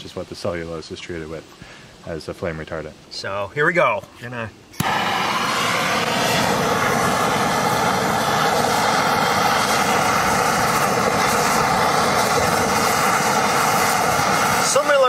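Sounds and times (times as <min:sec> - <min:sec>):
gas torch hissing: 0:04.8 - 0:15.0.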